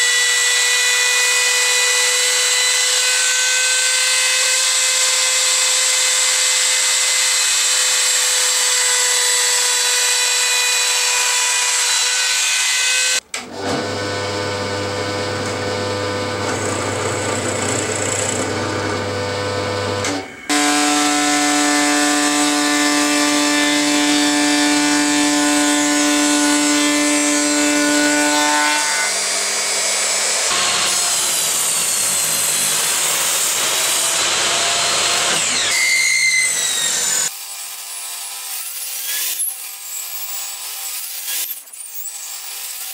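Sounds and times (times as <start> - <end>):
router whining: 0.0 - 37.3
table saw: 0.0 - 42.9
drill press boring: 13.6 - 20.9.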